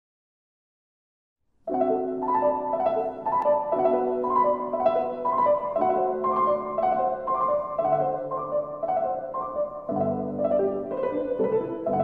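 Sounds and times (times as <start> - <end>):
piano music: 1.7 - 12.0.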